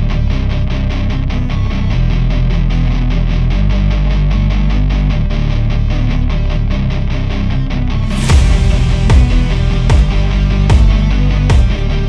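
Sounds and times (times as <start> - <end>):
rock music: 0.0 - 12.0
heavy drum hits: 8.2 - 12.0.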